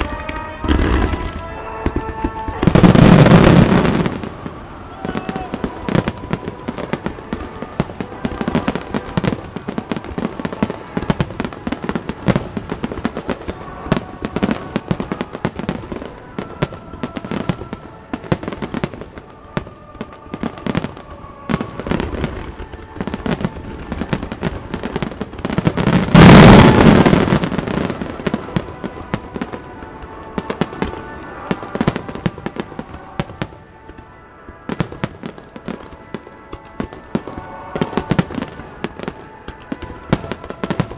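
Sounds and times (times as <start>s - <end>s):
loud firework blast: 0.0s - 19.1s, 20.0s - 33.6s
faint music: 0.0s - 40.9s
fireworks banging and crackling: 0.0s - 40.9s.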